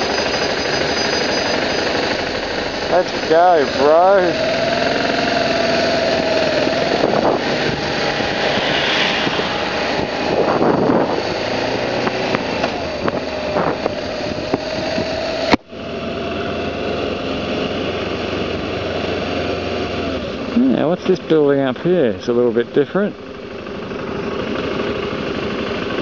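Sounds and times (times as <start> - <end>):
motorcycle engine running: 0.0 - 26.0
wind rush on microphone: 6.0 - 15.6.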